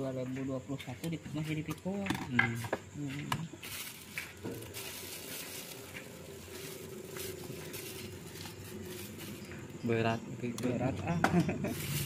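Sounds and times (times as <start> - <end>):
broth simmering hiss: 3.5 - 10.0.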